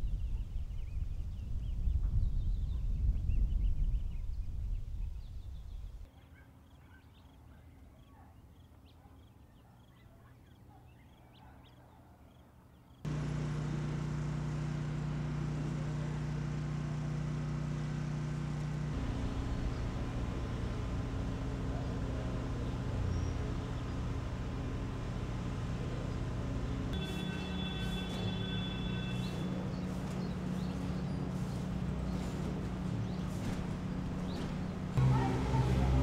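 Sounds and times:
engine hum with low drone: 13.1 - 36.0.

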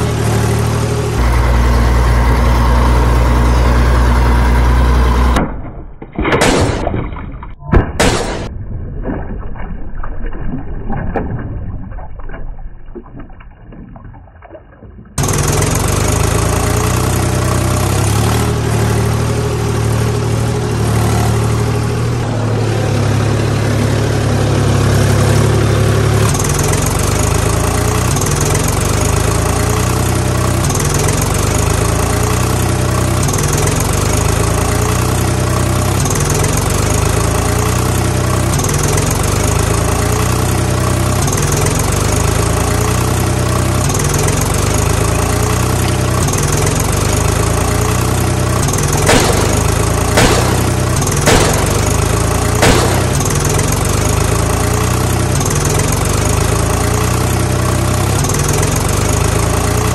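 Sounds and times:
tractor engine running: 0.0 - 8.5, 15.1 - 59.9
sharp clicks: 49.1 - 53.8.

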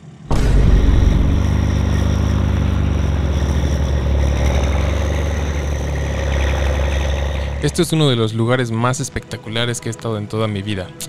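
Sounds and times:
diesel engine idling: 0.3 - 8.3.

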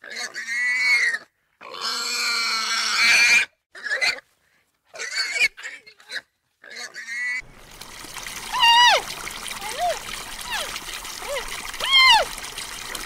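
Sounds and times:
animal crying out: 0.0 - 4.2, 8.4 - 13.0.

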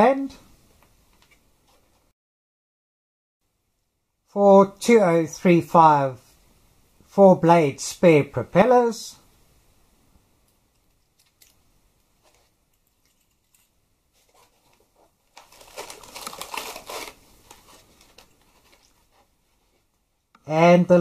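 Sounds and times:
packaging rustling and crinkling: 12.2 - 20.0.

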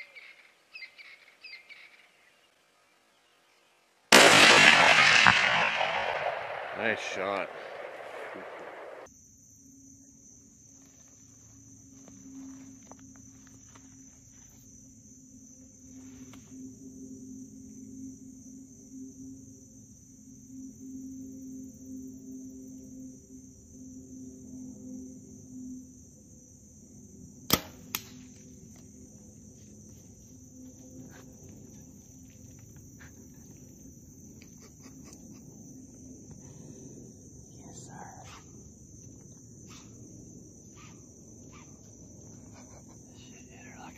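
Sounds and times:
crickets chirring: 0.0 - 43.9
insects droning: 0.0 - 43.9
bow string snap: 27.5 - 28.2.

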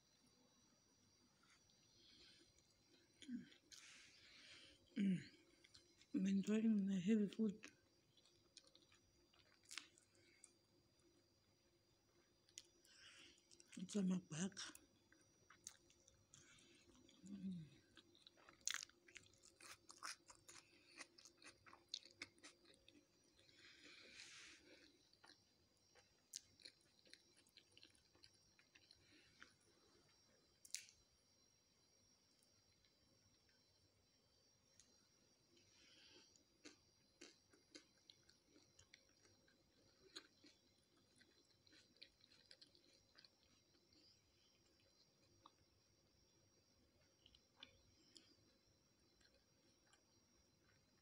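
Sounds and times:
chewing crunches: 8.1 - 10.6, 14.6 - 31.0, 36.2 - 45.7, 46.9 - 51.0.

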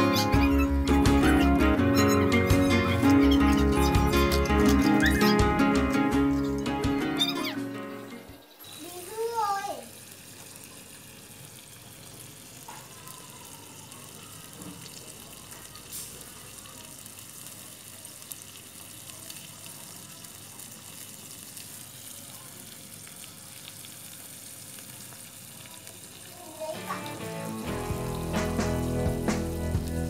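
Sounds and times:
scallops sizzling on a grill: 8.4 - 30.0.

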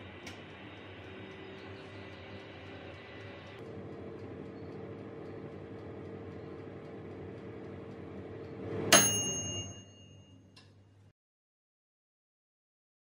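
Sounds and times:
oven fan humming: 0.0 - 11.1
metallic ding: 8.9 - 10.5.

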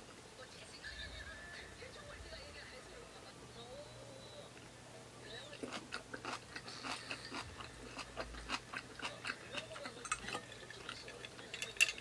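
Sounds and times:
person chewing food: 5.6 - 11.5.

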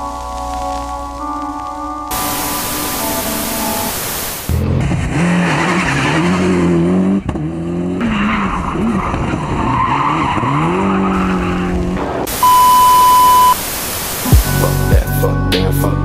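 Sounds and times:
car engine revving: 2.1 - 13.5
loud steady beep: 12.4 - 13.6.

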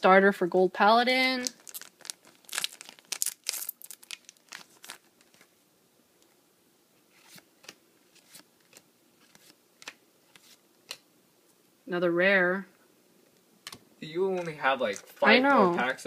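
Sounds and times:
foil pack tearing and crinkling: 1.4 - 5.5.

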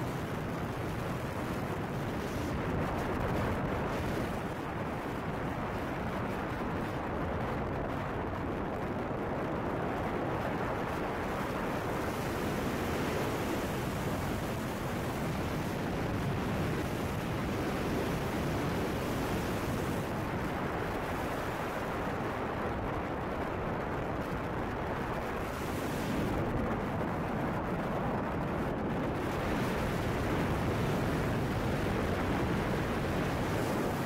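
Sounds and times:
car wind and tyre noise: 0.0 - 34.0.

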